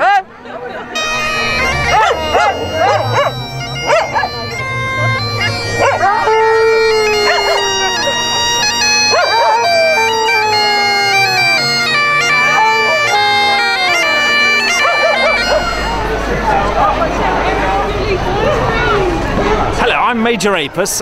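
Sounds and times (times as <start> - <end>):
bagpipes playing a tune: 0.8 - 18.1
dog barking: 1.9 - 4.4, 5.8 - 6.4, 7.2 - 8.2, 9.1 - 10.2, 14.8 - 15.8.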